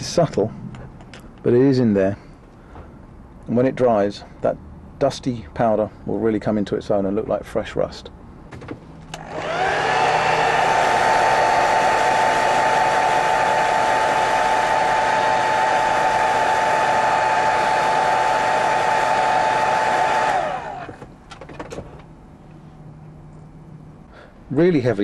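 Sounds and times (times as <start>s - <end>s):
hair dryer blowing: 9.2s - 21.0s.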